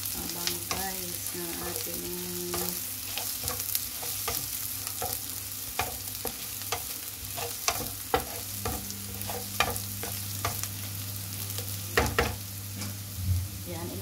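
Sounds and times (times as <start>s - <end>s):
food sizzling in oil: 0.0s - 14.0s
wooden spatula scraping pan: 5.8s - 10.6s.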